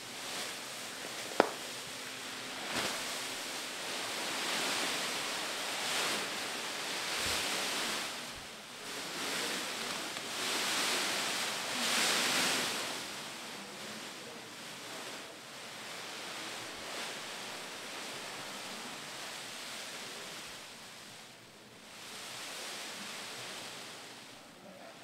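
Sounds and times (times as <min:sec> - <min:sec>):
plastic bag rustling and crinkling: 0:00.0 - 0:20.9.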